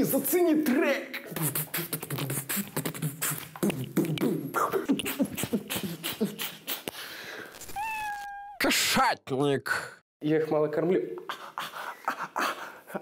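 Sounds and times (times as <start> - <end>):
beatboxing: 1.2 - 7.1.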